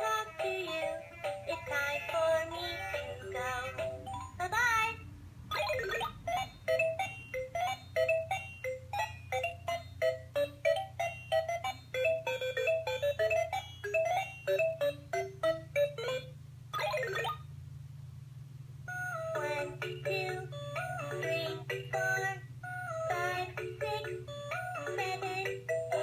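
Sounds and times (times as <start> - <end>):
toy phone electronic beeping tune: 5.7 - 16.3, 18.9 - 26.0.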